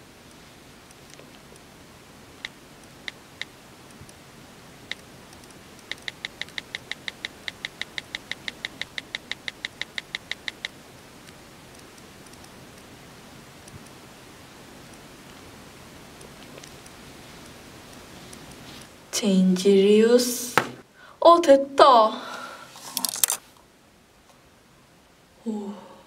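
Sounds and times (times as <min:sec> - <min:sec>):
faint hiss: 0:00.0 - 0:21.3, 0:21.9 - 0:26.0
phone keyboard tap blips: 0:05.9 - 0:10.7.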